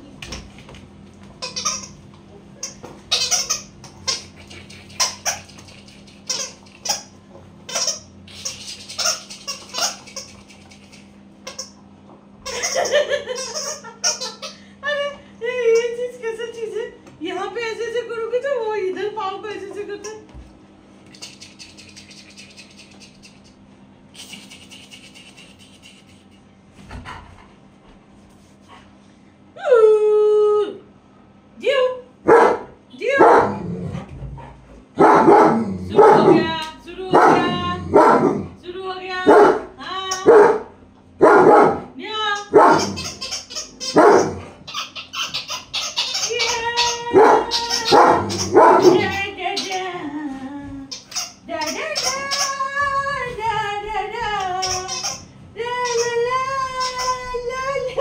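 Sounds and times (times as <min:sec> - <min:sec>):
dog barking: 0:32.3 - 0:33.6, 0:35.0 - 0:36.4, 0:37.1 - 0:38.4, 0:39.3 - 0:39.7, 0:40.3 - 0:41.9, 0:42.5 - 0:43.0, 0:43.9 - 0:44.5, 0:47.2 - 0:49.1.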